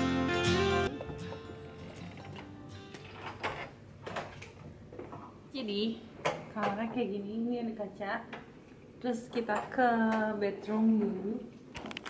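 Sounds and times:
background music: 0.0s - 3.6s
faint room hum: 0.9s - 12.0s.

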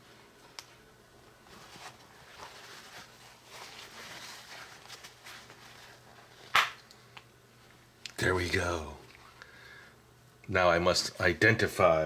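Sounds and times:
paper towel rustling: 1.2s - 6.6s.

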